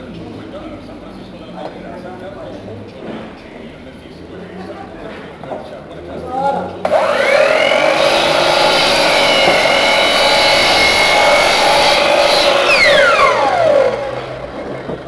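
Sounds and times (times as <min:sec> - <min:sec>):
miter saw cutting wood: 0:06.8 - 0:14.6
saw motor whine spinning down: 0:06.8 - 0:14.6.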